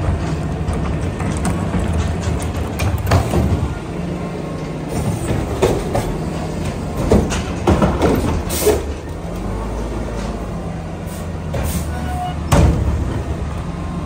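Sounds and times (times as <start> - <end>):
metallic clanks and knocks: 0.0 - 3.8, 4.6 - 9.1
diesel engine running: 0.0 - 14.0.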